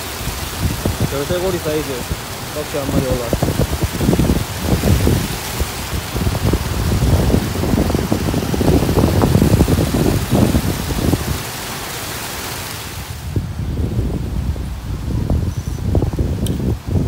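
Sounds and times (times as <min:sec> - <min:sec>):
steady hiss: 0:00.0 - 0:13.4.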